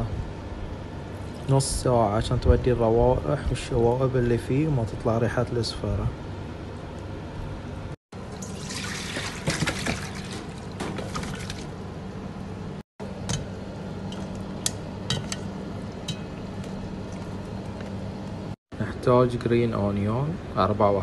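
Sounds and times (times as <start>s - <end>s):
milk pouring into bowl: 8.4s - 11.6s
clinks and splashes in metal bowl: 8.4s - 11.7s.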